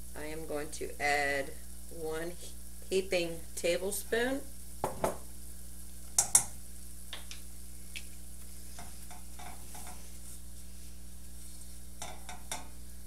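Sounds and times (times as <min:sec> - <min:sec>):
faint hiss: 0:00.0 - 0:13.0
spatula scraping a pan: 0:08.6 - 0:12.6.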